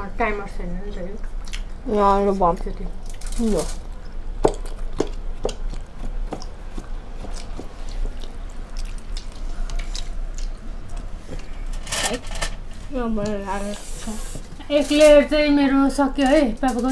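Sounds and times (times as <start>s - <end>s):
people chewing food: 0.8s - 16.9s.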